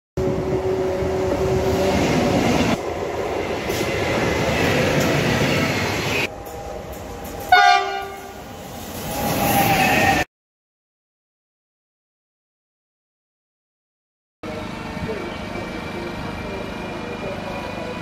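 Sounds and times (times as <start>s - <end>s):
freight train rumbling past: 0.2s - 10.3s, 14.4s - 18.0s
locomotive horn blast: 7.5s - 8.4s.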